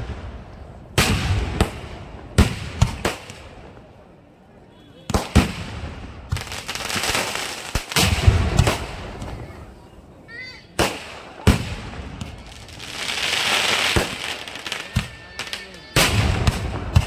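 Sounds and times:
firework bangs: 0.0s - 3.9s, 5.0s - 9.8s, 10.7s - 17.0s
firework crackle: 5.1s - 9.8s, 10.8s - 17.0s.

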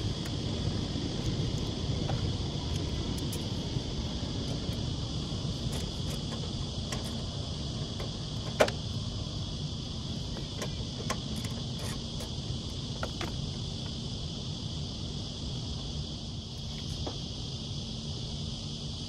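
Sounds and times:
high-pitched insect chorus: 0.0s - 19.0s
fan blade clicks and knock: 5.6s - 7.3s, 7.9s - 8.9s, 10.3s - 13.4s.

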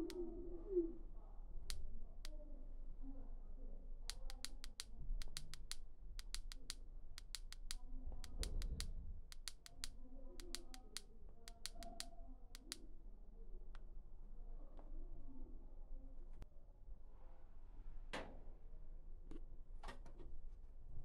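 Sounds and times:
sharp clicks: 1.6s - 2.4s, 4.1s - 12.8s.

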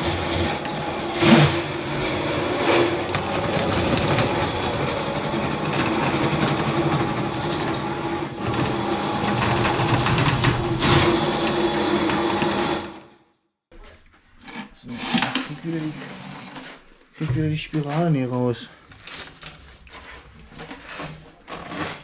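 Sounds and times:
cable rattling in metal pipe: 0.0s - 13.0s
drain cleaning machine running: 0.0s - 13.1s.

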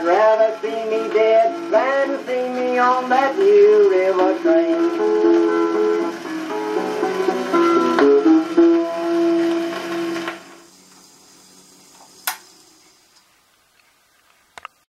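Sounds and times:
old-time string music on phonograph: 0.0s - 10.6s
record surface hiss: 0.0s - 14.9s
sharp record click: 12.2s - 12.5s.

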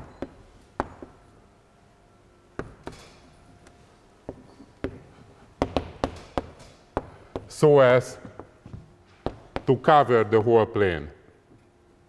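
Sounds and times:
chalk tapping on blackboard: 9.3s - 9.8s.

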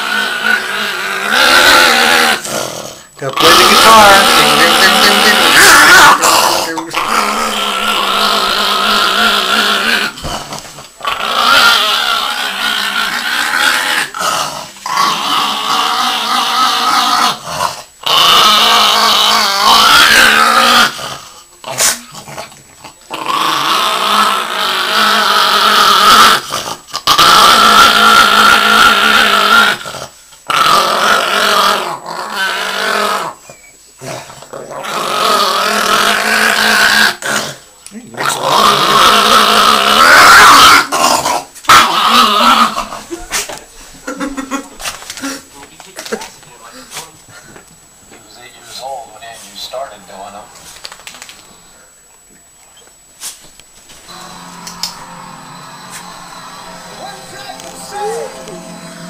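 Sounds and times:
small dog growling and snarling: 0.0s - 43.0s.

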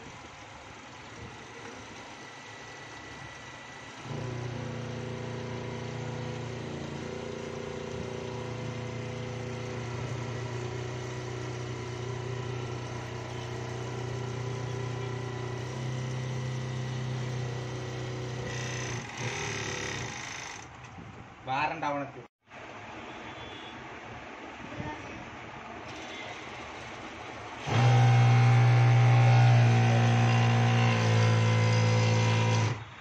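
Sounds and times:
overlock machine sewing: 2.0s - 20.8s, 25.8s - 33.0s.

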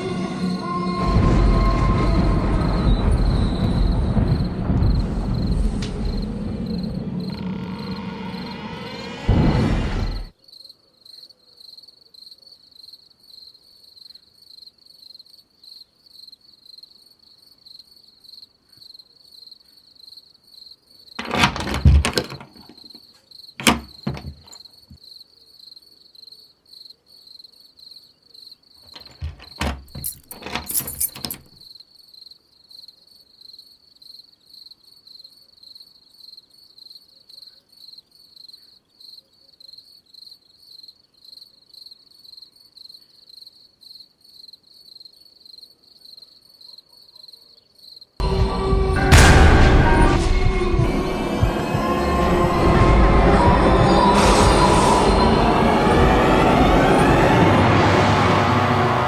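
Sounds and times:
background music: 0.0s - 10.3s, 48.2s - 59.0s
crickets chirping: 0.0s - 49.1s
wooden door knocking and rattling: 21.2s - 22.8s, 23.6s - 24.6s, 28.9s - 31.5s.

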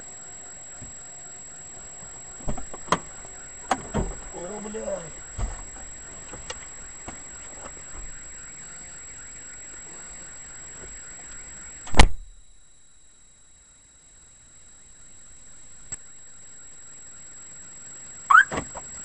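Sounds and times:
car cabin noise: 0.0s - 12.6s, 18.1s - 19.0s
loud sudden thump: 11.9s - 12.4s.

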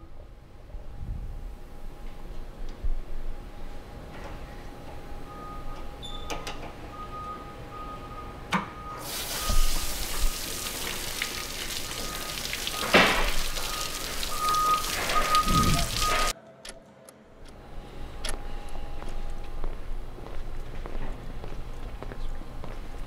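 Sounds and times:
water spraying in hissing jet: 9.0s - 16.3s.

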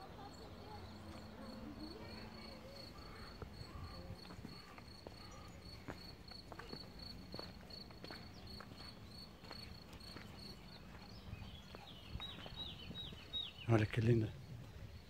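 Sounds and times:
crickets chirping: 0.0s - 13.7s
footsteps on dirt path: 3.0s - 15.0s.

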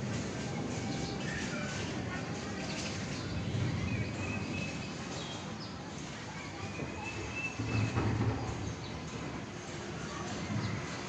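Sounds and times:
whistling bird calls: 6.7s - 8.0s.

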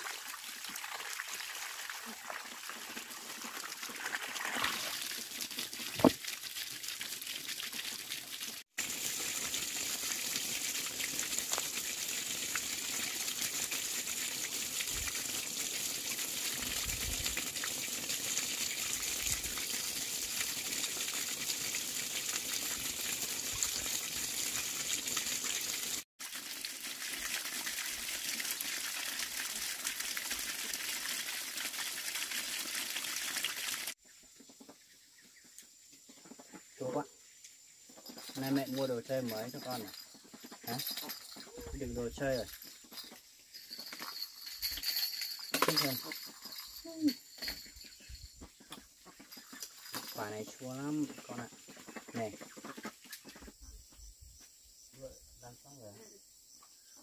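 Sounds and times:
water gushing: 0.0s - 34.0s.

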